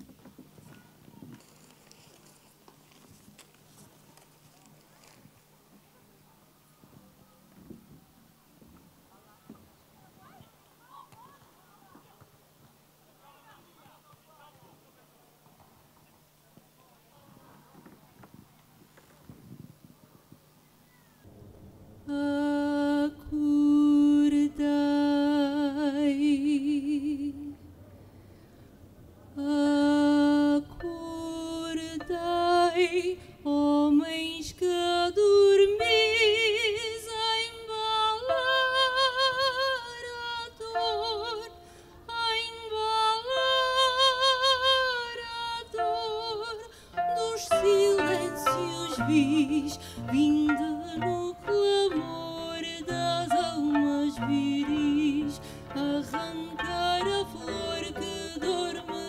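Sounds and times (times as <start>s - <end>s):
woman singing with vibrato: 22.1s - 27.6s, 29.4s - 59.0s.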